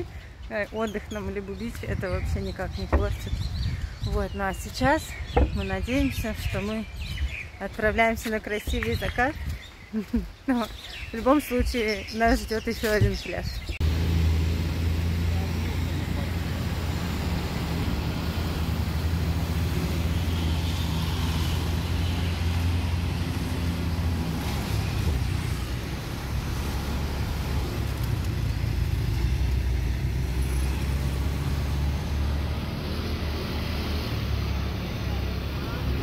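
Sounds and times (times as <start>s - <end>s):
road noise: 0.0s - 36.0s
vehicle engine hum: 11.9s - 36.0s.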